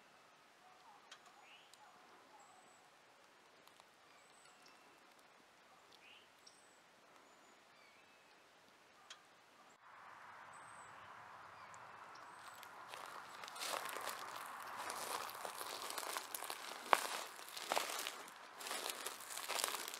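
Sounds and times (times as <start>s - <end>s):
soft steady hiss: 0.0s - 19.9s
birds chirping: 10.5s - 19.9s.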